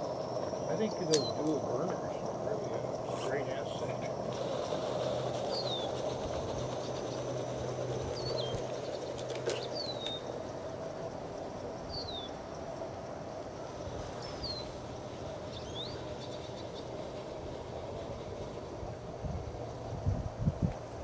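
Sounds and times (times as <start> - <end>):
bird chirping: 0.0 - 10.8, 11.7 - 12.8, 13.8 - 18.7
outdoor background noise: 0.0 - 21.0
sharp click: 1.1 - 1.3.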